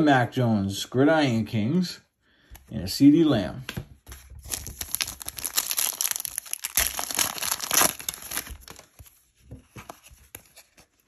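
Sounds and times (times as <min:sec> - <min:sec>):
foil wrapper crinkling and tearing: 0:04.4 - 0:09.1.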